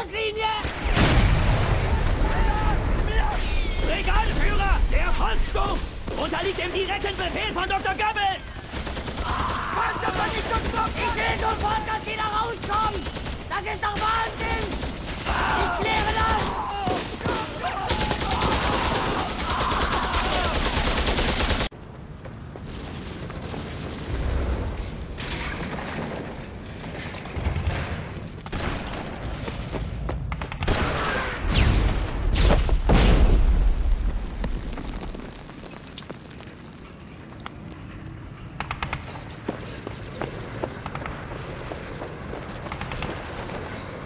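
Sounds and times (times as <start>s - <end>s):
shell explosions: 0.6s - 21.7s, 22.7s - 35.2s
gunfire: 25.2s - 33.8s.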